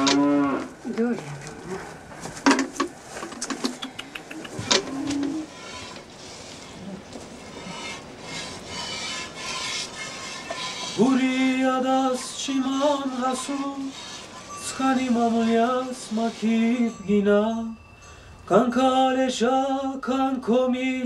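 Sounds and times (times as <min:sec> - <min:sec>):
person singing unaccompanied: 0:10.6 - 0:17.8.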